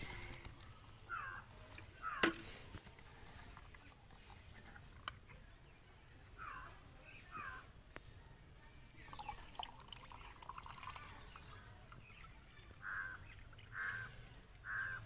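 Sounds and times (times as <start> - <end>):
liquid trickling and splashing: 0.0 - 5.1, 8.8 - 15.0.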